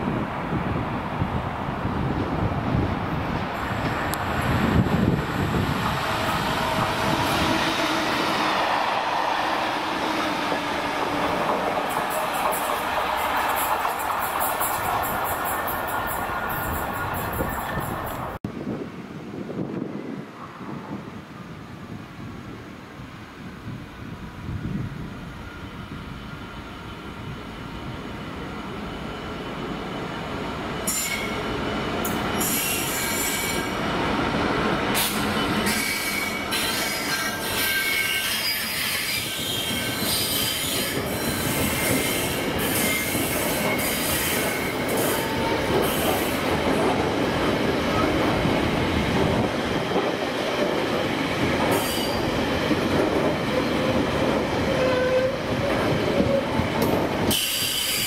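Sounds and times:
diesel locomotive passing: 0.0 - 58.0
high-pitched wheel squeal: 54.7 - 55.4.

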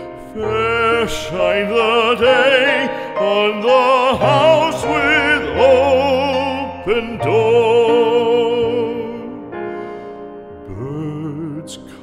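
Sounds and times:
classical singer with vibrato: 0.0 - 9.8, 10.6 - 12.0
piano accompaniment: 0.0 - 12.0.

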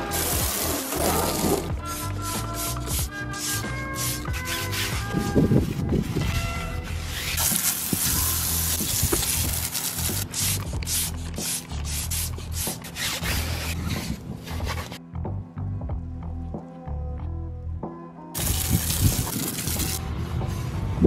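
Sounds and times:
water jet spraying: 0.0 - 5.8, 7.0 - 13.8, 18.4 - 20.0
music with bass beat: 0.0 - 13.8, 15.0 - 21.0
brush scrubbing: 0.0 - 15.0, 18.4 - 20.0.

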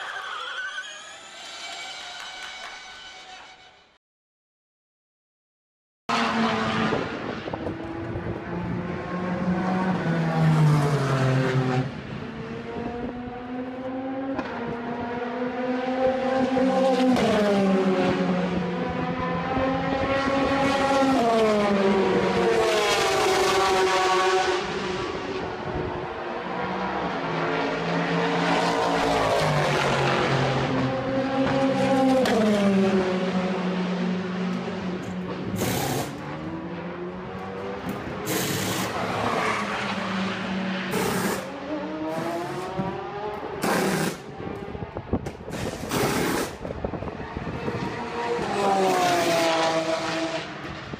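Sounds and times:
race car engines revving: 6.1 - 50.9.

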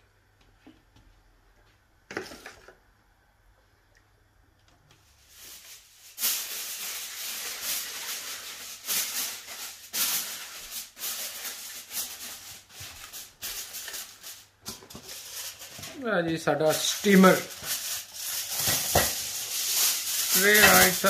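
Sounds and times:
steam hissing and sputtering: 5.3 - 14.5, 16.6 - 21.0.

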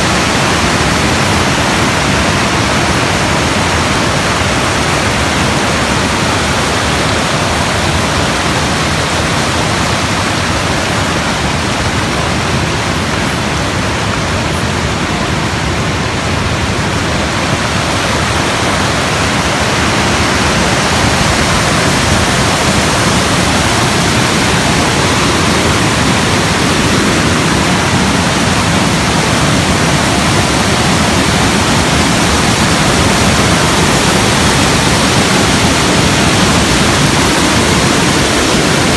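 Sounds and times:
water rushing over falls: 0.0 - 38.9.

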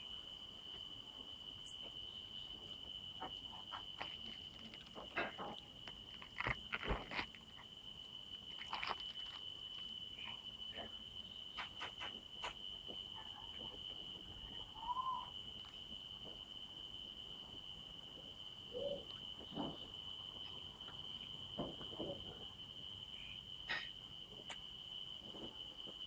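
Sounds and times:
cricket trill: 0.0 - 26.0
durian husk cracking: 4.0 - 7.6.

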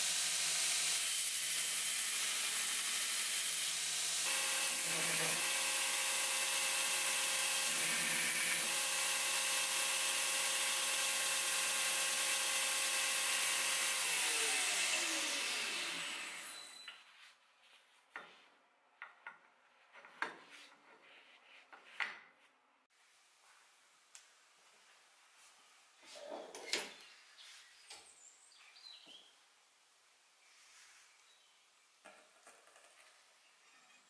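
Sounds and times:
belt grinder running: 0.0 - 16.7
grinder belt winding down: 4.1 - 16.6.

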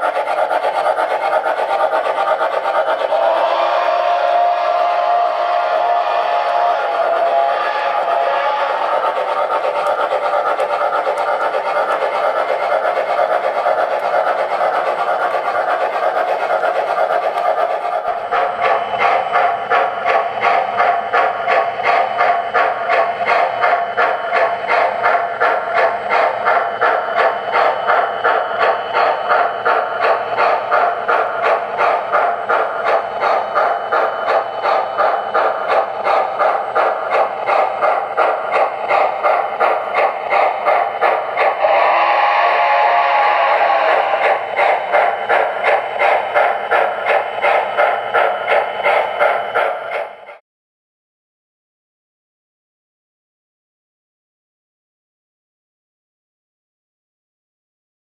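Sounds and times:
electronic steam chuffing: 0.0 - 50.4
train whistle blast: 3.0 - 9.3, 41.5 - 44.5.

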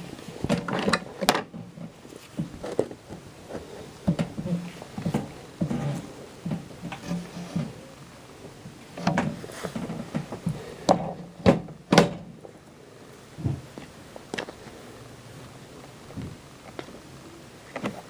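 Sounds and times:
knocks and thuds: 9.1 - 12.3.

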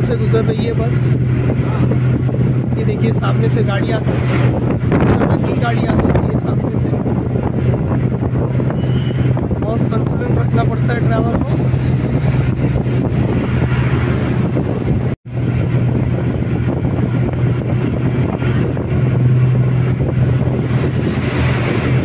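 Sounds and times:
bus engine humming: 0.0 - 22.0
road rumble: 0.0 - 22.0
wind noise: 0.0 - 22.0.

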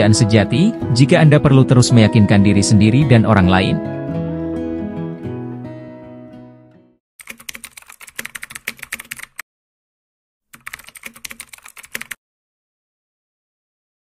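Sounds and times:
soft guitar music: 0.0 - 7.0
computer keyboard typing: 7.2 - 9.4, 10.5 - 12.2.

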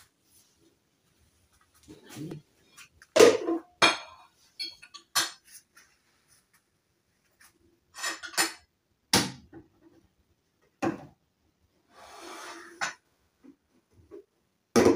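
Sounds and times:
dishes and cutlery clinking: 3.2 - 5.7, 7.9 - 8.7
scraping on kitchen counter: 11.9 - 13.0.

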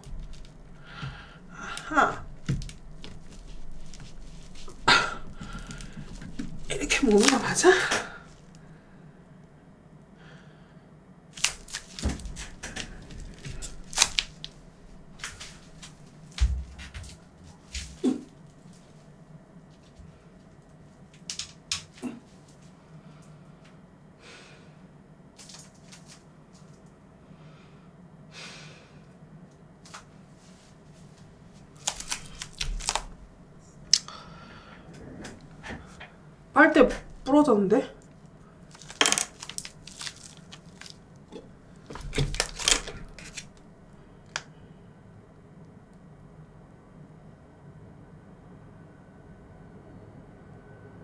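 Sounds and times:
coconut crunching and scraping: 0.0 - 8.6, 11.4 - 16.0, 31.6 - 33.2, 38.7 - 43.6
scratchy rustles and scrapes: 2.2 - 7.6.

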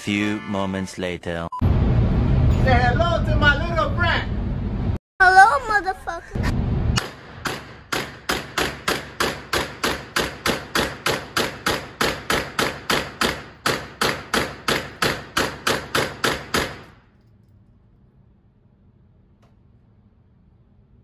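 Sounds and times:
rapid pistol shots: 7.0 - 17.0
gunshot echo off walls: 7.0 - 17.1.

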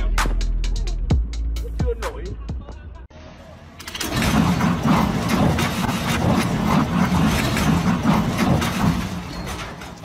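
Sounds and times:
heavy truck engine running hard: 3.2 - 10.0
metallic clattering and knocks: 3.8 - 10.0.

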